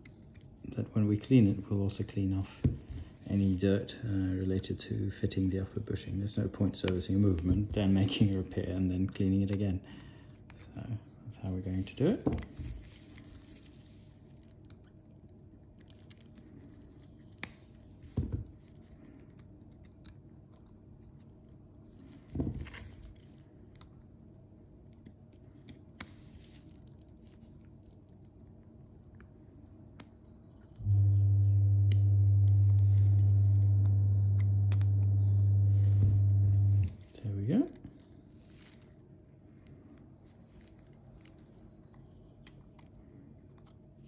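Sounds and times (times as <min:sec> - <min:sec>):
electric bench machine humming: 0:30.8 - 0:37.0.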